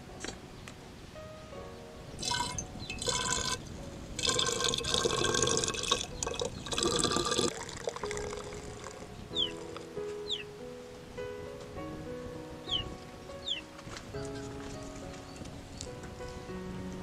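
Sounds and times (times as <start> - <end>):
wine pouring into glass bottle: 2.2 - 3.6, 4.2 - 9.0.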